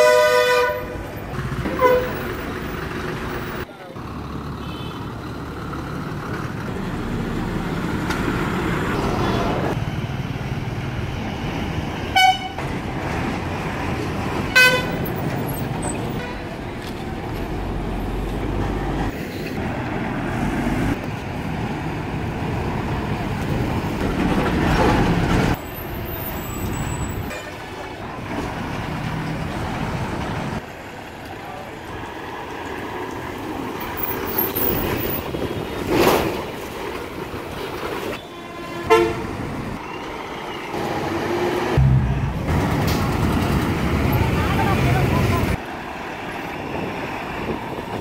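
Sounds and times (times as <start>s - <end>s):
bus horn toots: 0.0s - 1.1s, 1.7s - 2.2s, 4.6s - 5.0s, 12.1s - 12.7s, 14.5s - 15.1s, 16.2s - 16.4s, 38.2s - 39.4s
bus engines running: 0.0s - 48.0s.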